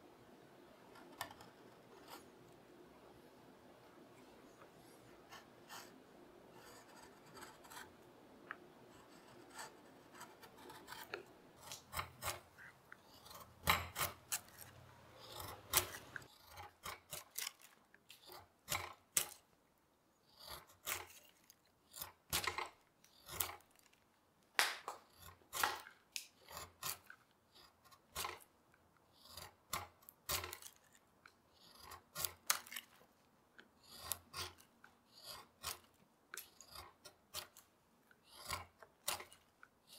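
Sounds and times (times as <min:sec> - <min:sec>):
carving gouge cutting wood: 0:00.9 - 0:02.4, 0:06.6 - 0:08.0, 0:08.9 - 0:19.5, 0:20.2 - 0:23.7, 0:24.9 - 0:33.1, 0:33.7 - 0:39.9.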